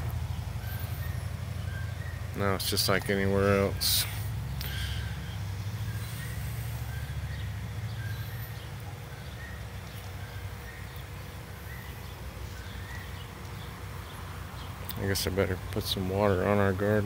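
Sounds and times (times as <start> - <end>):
faint bird chirps: 0.0 - 16.5.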